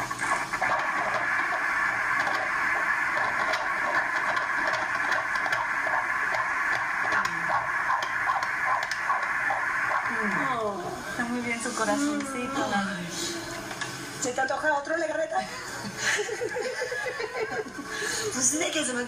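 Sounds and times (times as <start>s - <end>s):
doppler heartbeat pulsing hiss: 0.0s - 13.6s.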